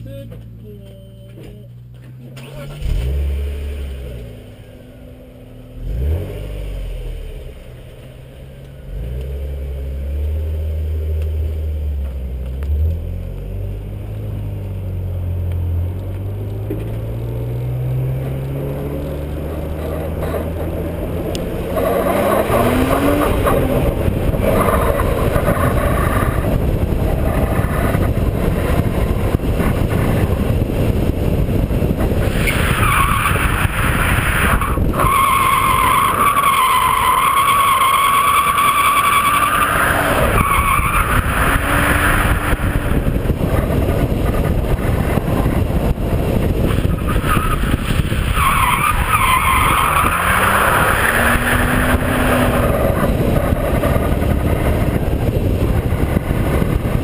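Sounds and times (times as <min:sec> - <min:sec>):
car engine running hard: 0:12.0 - 0:57.0
wind rush: 0:17.1 - 0:57.0.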